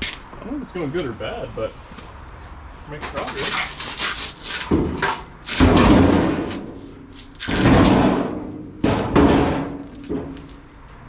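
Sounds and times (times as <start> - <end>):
heavy thumps on car body: 4.7 - 6.7, 7.5 - 10.5.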